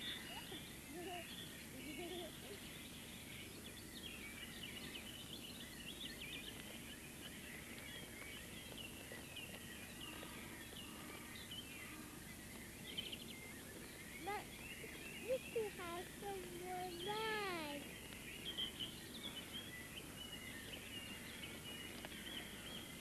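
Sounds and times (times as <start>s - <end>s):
small birds chirping: 0.0s - 23.0s
steady background hiss: 0.0s - 23.0s.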